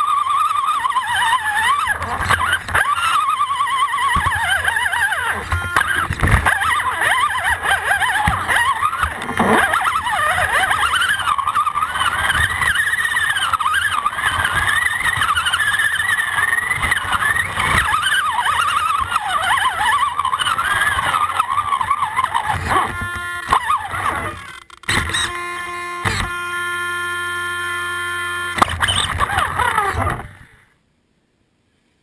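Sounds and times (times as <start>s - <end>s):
electric motor and gears whining: 0.0s - 30.7s.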